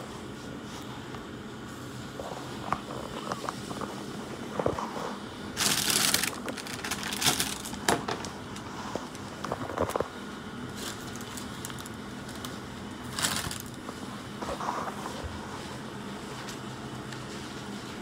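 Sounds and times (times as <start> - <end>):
low machinery hum: 0.0 - 18.0
plastic bag rustling: 2.5 - 15.2.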